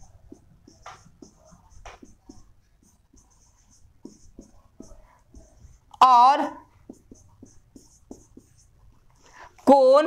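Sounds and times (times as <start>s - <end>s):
marker scratching on whiteboard: 0.0s - 9.8s.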